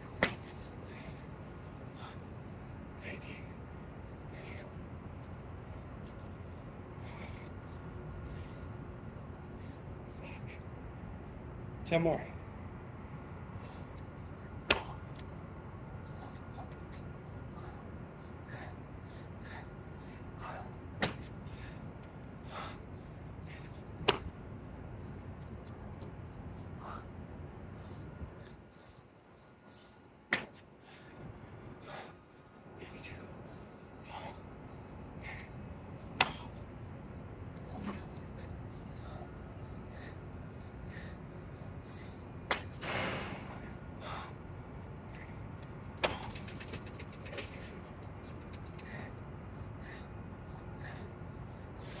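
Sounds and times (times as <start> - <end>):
sharp smacks on concrete: 0.2 - 0.5, 14.7 - 15.0, 21.0 - 21.3, 24.0 - 24.3, 30.3 - 30.6, 42.5 - 42.8
sharp slaps: 0.2 - 0.6, 14.6 - 15.3, 21.0 - 21.3, 24.0 - 24.4, 30.3 - 30.6, 36.2 - 36.5, 42.5 - 43.5
man breathing hard: 0.3 - 6.2, 6.9 - 8.9, 13.5 - 15.2, 16.0 - 24.1, 26.4 - 36.8, 37.6 - 52.0.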